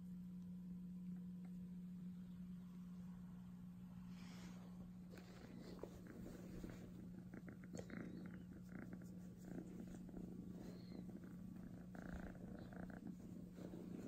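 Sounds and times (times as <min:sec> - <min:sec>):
kitten purring: 0:04.0 - 0:14.0.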